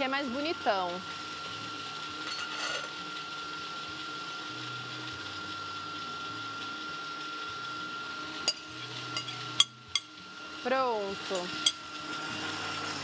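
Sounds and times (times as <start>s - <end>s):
steady whir: 0.0s - 13.0s
metal spoon clinking glass bowl: 2.2s - 2.9s, 8.5s - 10.1s.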